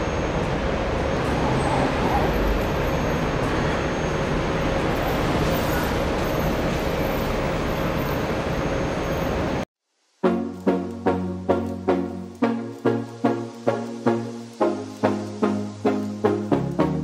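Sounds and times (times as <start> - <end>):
moving vehicle rumble: 0.0 - 9.7.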